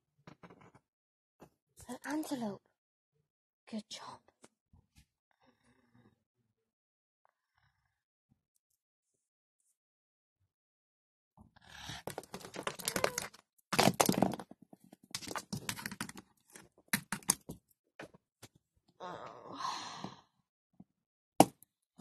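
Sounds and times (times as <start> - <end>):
plastic figurines tapping on wood: 12.1 - 14.4, 15.2 - 16.2, 17.0 - 17.6.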